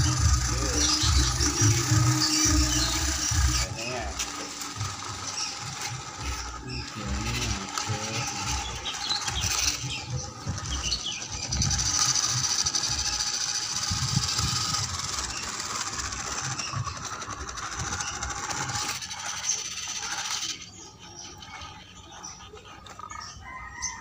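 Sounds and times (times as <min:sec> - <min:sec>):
tyres grinding over gravel: 0:00.0 - 0:23.4
electric motor whining: 0:00.0 - 0:24.0.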